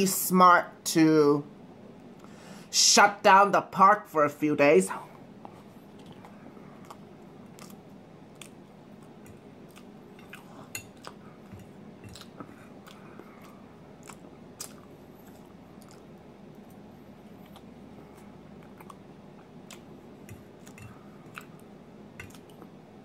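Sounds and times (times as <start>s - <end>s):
person chewing: 5.5s - 22.8s.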